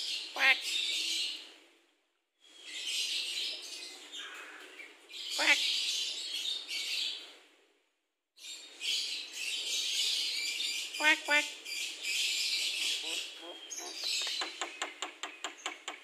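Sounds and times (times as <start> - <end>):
bird sharp squawk: 5.4 - 5.7.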